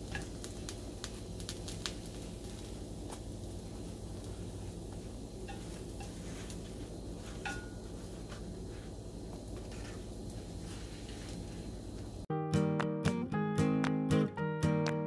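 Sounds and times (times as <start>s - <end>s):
steady low hum: 0.0s - 12.3s
chopsticks scraping a frying pan: 5.4s - 8.4s.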